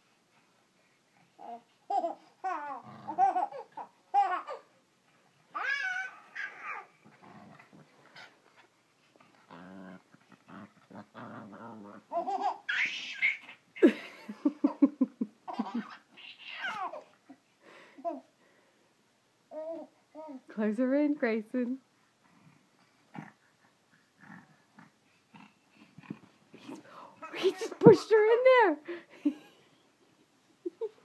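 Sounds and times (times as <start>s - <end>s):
baby squealing and laughing: 1.4s - 4.7s, 5.5s - 6.9s, 12.1s - 13.9s, 15.5s - 17.1s
small dog growling playfully: 2.8s - 3.3s, 7.0s - 8.4s, 9.2s - 12.2s, 22.3s - 26.8s.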